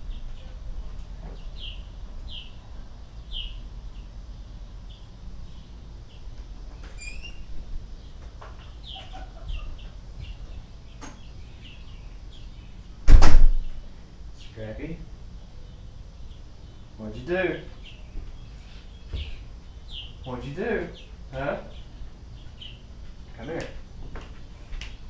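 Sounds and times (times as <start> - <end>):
small birds chirping: 0.0 - 13.0, 13.6 - 23.8.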